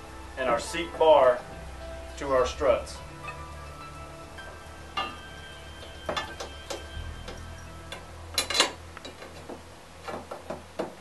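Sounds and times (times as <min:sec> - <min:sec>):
quiet background music: 0:00.0 - 0:11.0
metallic clinks and taps: 0:05.8 - 0:09.6.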